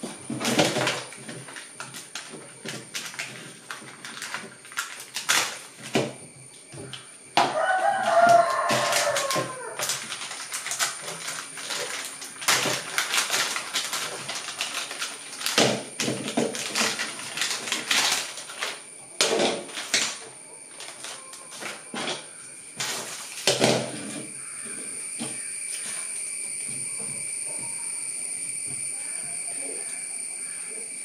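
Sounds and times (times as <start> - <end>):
plastic packaging crinkling: 0.0 - 6.1, 6.8 - 24.7.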